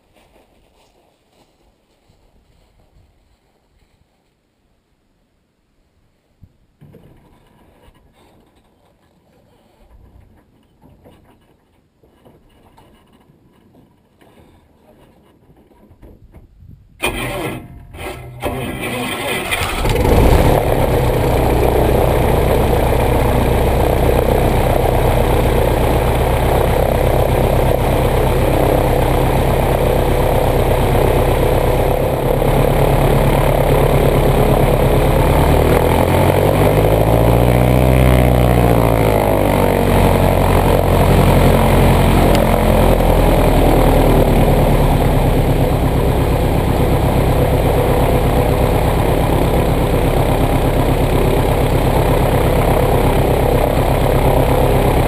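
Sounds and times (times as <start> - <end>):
aircraft piston engine idling: 19.4 - 55.0.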